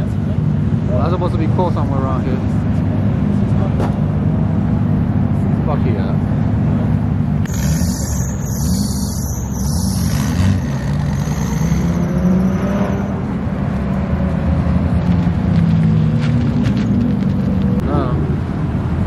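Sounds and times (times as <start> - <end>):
car engine revving: 7.4 - 19.0.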